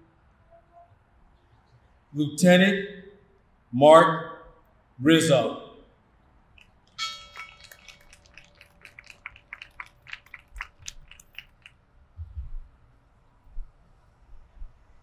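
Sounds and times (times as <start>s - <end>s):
faint irregular clicks: 6.5s - 11.8s
bell ringing: 7.0s - 8.1s.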